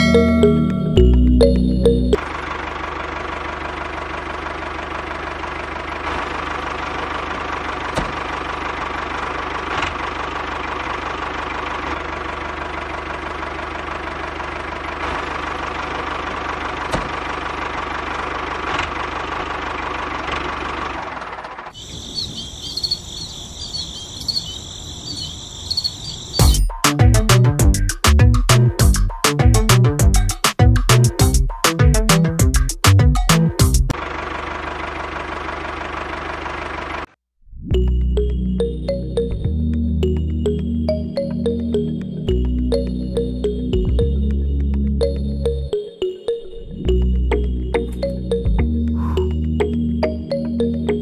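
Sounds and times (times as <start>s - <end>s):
high chirping: 21.8s - 26.8s
music with a beat: 26.4s - 33.9s.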